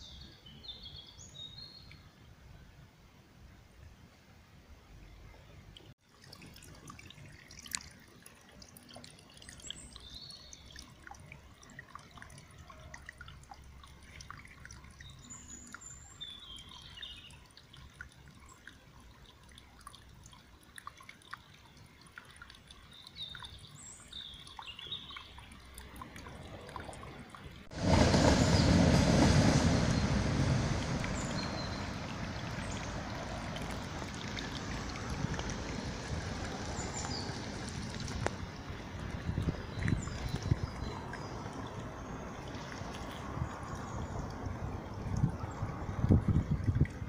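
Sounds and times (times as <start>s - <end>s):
stream trickling over stones: 5.6s - 47.0s
street traffic noise: 25.8s - 47.0s
birds chirping: 27.9s - 34.6s.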